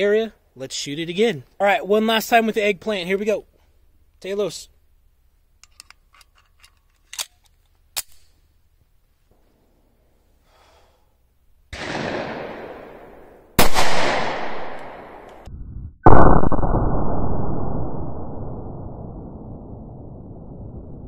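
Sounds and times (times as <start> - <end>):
pistol loading clicks: 5.6 - 8.4
pistol shot echoing: 11.7 - 15.3
rush of noise: 15.4 - 21.0.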